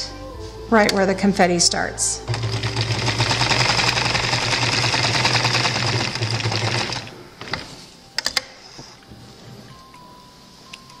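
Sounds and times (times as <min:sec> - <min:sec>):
sewing machine stitching: 0:02.3 - 0:07.7.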